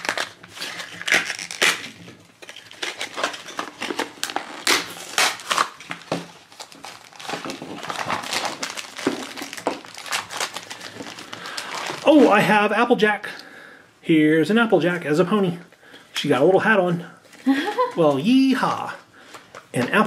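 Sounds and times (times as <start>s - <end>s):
plastic packaging crinkling: 0.0s - 12.6s.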